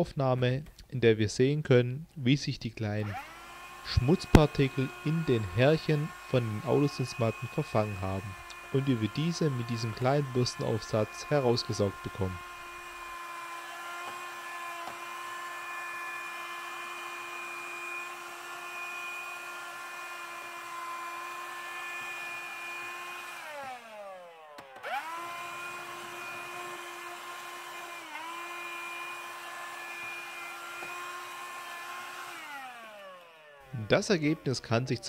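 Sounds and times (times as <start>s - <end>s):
hand vacuum motor whine: 3.0s - 35.0s
brush nozzle on carpet: 3.9s - 13.1s.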